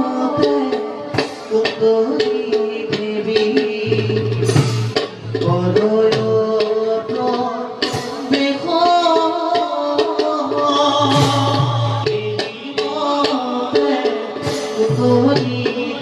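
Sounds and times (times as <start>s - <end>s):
person singing: 0.0s - 16.0s
hand drum strokes: 0.3s - 9.1s.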